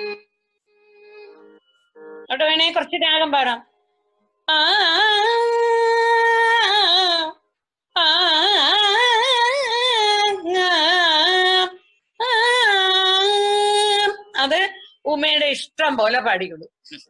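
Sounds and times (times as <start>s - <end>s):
woman singing wordless phrases: 4.5s - 7.4s, 8.0s - 15.3s.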